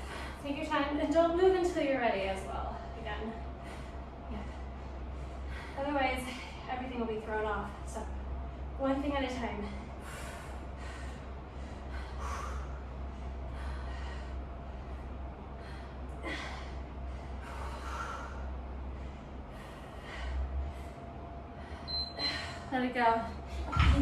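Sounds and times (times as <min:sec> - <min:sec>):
woman breathing hard: 0:00.0 - 0:00.4, 0:02.7 - 0:06.7, 0:09.6 - 0:23.8
steady low hum: 0:00.0 - 0:24.0.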